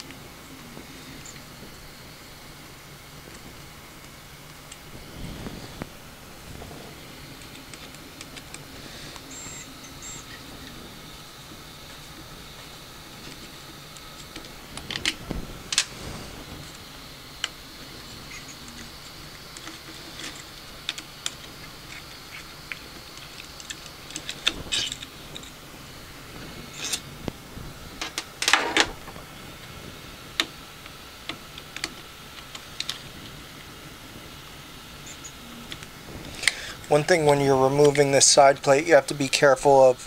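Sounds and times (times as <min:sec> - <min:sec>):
small parts clicking and clattering: 0:18.3 - 0:25.6.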